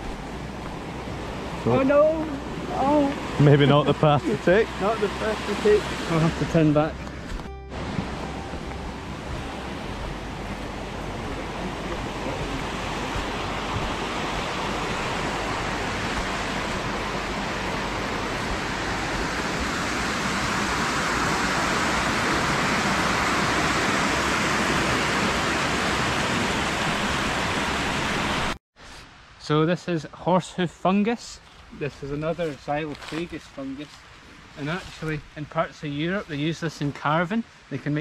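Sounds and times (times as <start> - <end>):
stream water rushing: 0.0 - 28.6.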